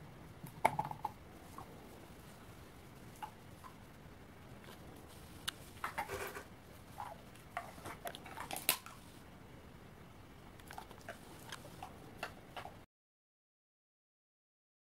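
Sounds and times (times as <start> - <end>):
dog crunching walnut shells: 5.8 - 9.0, 10.6 - 12.7.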